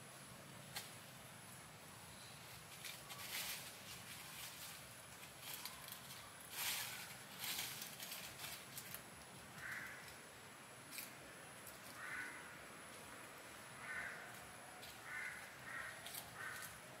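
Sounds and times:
crackling rustles: 0.6s - 1.6s, 2.4s - 17.0s
crow cawing: 9.6s - 10.2s, 11.8s - 12.8s, 13.7s - 16.9s.

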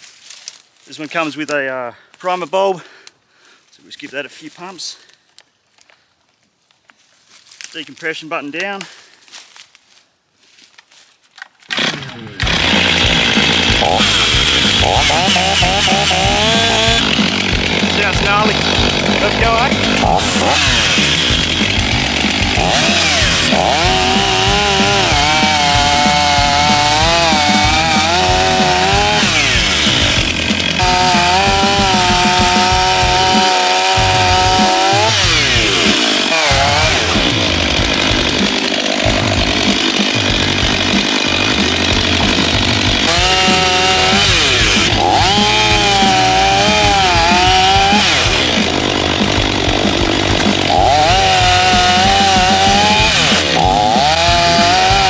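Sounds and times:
chainsaw cutting logs: 11.4s - 55.0s.

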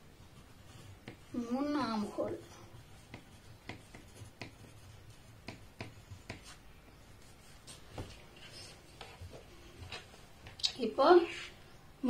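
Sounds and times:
pen scratching on paper: 0.4s - 6.6s.

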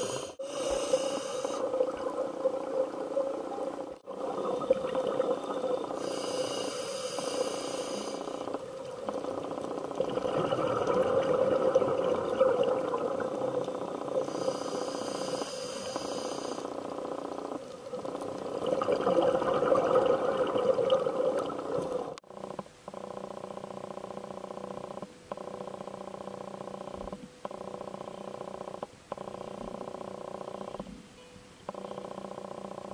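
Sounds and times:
regulator hissing inhale: 0.0s - 1.8s, 6.0s - 8.5s, 14.2s - 16.8s
gurgle of exhaled bubbles: 4.1s - 6.0s, 9.1s - 14.2s, 17.9s - 22.2s.

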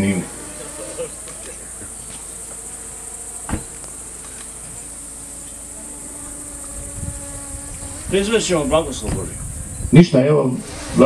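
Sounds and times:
crickets chirping: 0.0s - 11.0s
sharp knock: 3.5s - 3.8s.

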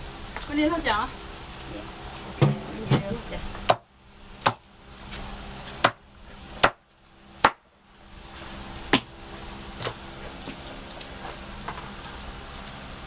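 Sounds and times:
sharp chopping strikes: 4.4s - 4.6s, 6.6s - 6.8s, 7.4s - 7.6s.

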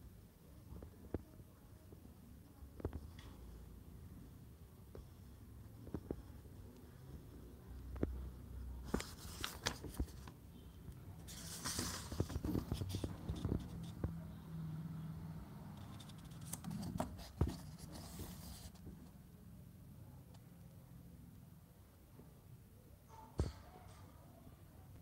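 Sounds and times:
paper pages rustling: 8.8s - 10.4s, 11.2s - 14.0s, 15.8s - 18.8s.

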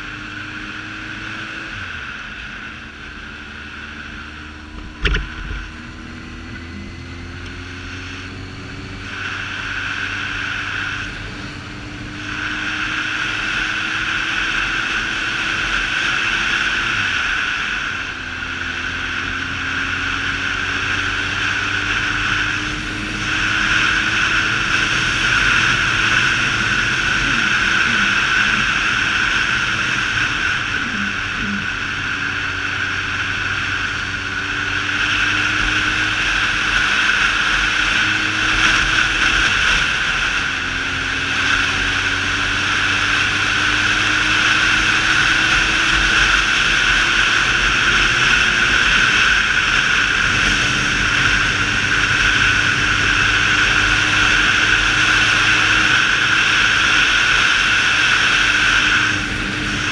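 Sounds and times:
motorcycle engine running: 0.0s - 59.9s
wind rushing on camera: 0.0s - 59.9s.

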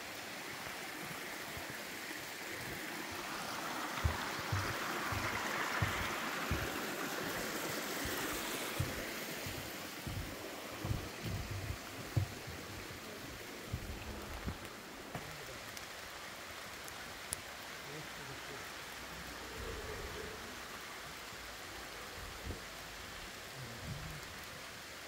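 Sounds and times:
stream rushing over rocks: 0.0s - 25.0s
footsteps thudding: 4.0s - 12.9s.

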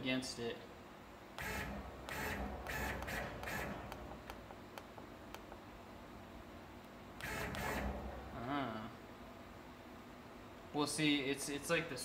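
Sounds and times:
servo motors whirring: 1.4s - 4.1s, 7.2s - 8.1s.

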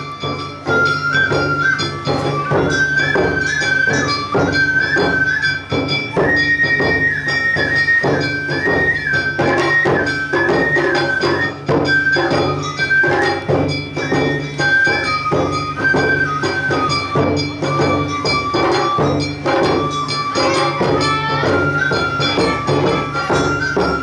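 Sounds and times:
bamboo flute melody: 0.0s - 24.0s
drums beating: 0.0s - 24.0s.

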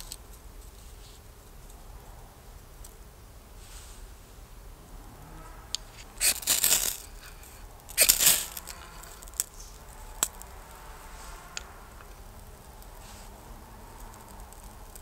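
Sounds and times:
striker scraping ferro rod: 5.7s - 9.5s.

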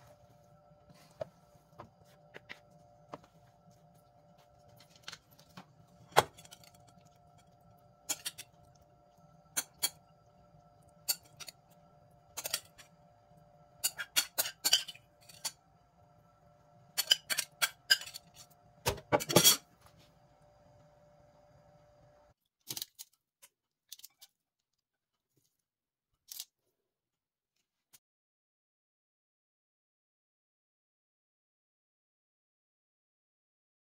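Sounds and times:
utensils clinking against cookware: 8.0s - 8.8s, 9.5s - 10.1s, 11.0s - 12.9s, 13.8s - 15.6s, 16.9s - 19.7s.

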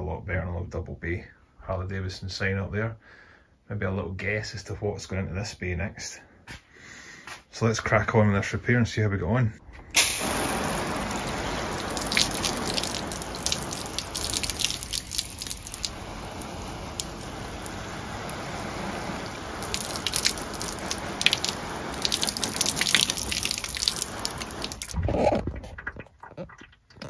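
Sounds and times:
hose water spraying on fabric roof: 9.9s - 25.0s.

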